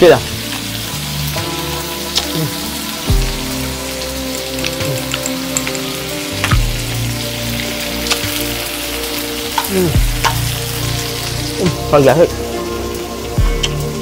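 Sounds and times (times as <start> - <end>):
shrimp sizzling on grill pan: 0.0 - 14.0
chopsticks clicking on pan: 8.0 - 8.4, 9.5 - 10.4.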